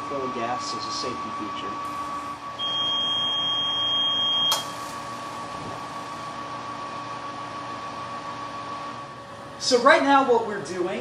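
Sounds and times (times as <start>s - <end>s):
high electronic beep: 2.6s - 4.6s
sharp click: 4.5s - 4.7s.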